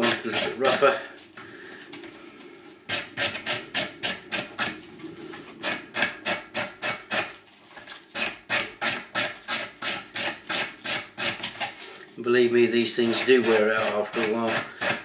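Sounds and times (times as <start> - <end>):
sanding block rubbing wood: 0.0 - 1.0, 2.9 - 4.8, 5.5 - 7.4, 12.6 - 15.0.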